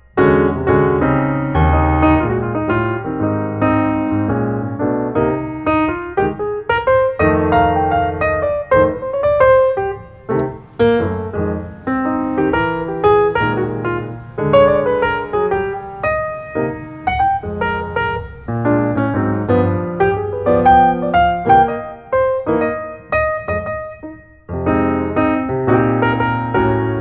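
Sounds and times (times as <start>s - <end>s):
piano playing notes and chords: 0.0s - 27.0s.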